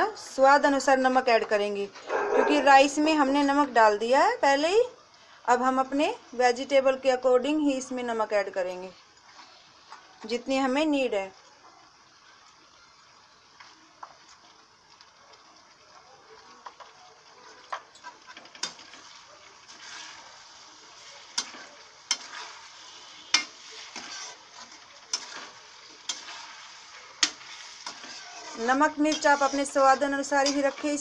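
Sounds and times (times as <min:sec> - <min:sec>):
vegetables sizzling in a pan: 0:00.0 - 0:31.0
metal spatula clinking on pan: 0:30.4 - 0:30.8.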